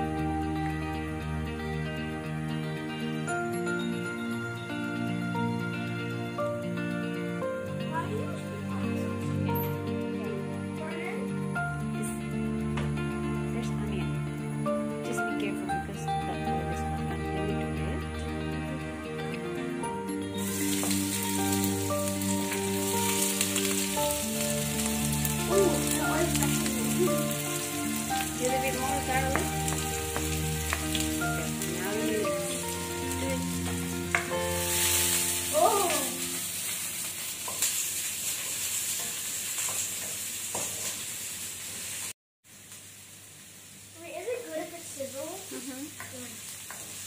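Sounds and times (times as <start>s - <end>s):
background music: 0.0s - 37.2s
onion sizzling in a wok: 0.0s - 47.0s.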